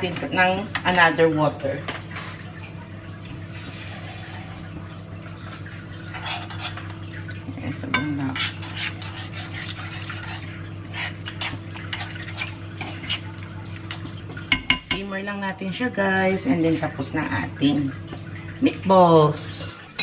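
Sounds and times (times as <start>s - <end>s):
utensil scraping a frying pan: 6.0s - 14.2s.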